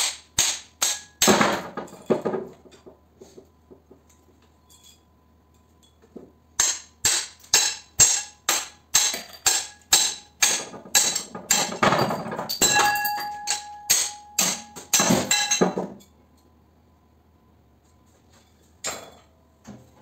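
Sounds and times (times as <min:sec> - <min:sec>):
hammer striking metal: 0:00.0 - 0:01.7, 0:06.6 - 0:15.9
metal ringing: 0:11.0 - 0:15.8.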